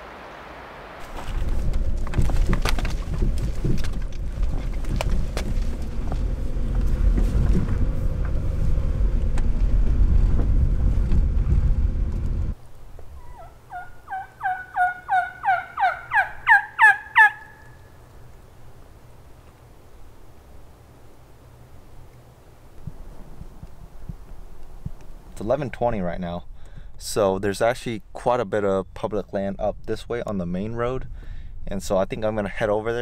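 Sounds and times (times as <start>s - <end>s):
car road rumble: 0.0s - 13.1s
clicks and rattles in car: 1.5s - 8.5s
turkey yelping: 13.2s - 17.8s.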